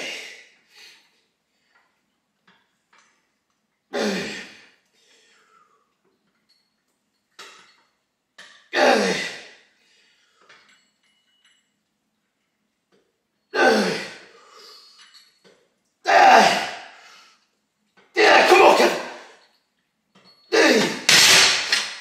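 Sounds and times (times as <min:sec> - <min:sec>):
man grunting with effort: 0:08.8 - 0:09.5, 0:13.6 - 0:14.2, 0:16.1 - 0:16.8, 0:18.2 - 0:19.3, 0:20.5 - 0:21.1.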